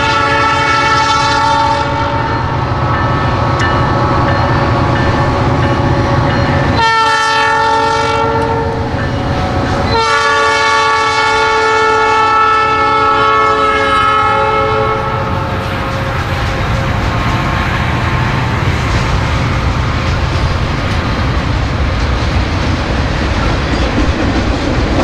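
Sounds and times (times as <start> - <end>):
locomotive air horn blasts: 0.0 - 2.5, 6.7 - 8.9, 9.5 - 17.0
train rumbling past: 0.0 - 25.0.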